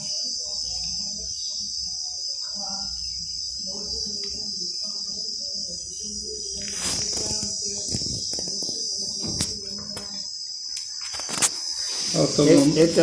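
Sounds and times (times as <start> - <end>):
crickets chirring: 0.0 - 13.0.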